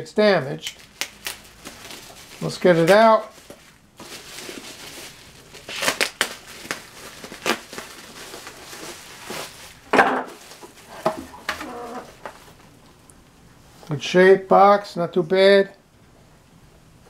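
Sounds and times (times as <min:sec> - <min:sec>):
bubble wrap crinkling: 0:00.6 - 0:12.8
cardboard rustling and scraping: 0:01.6 - 0:12.7.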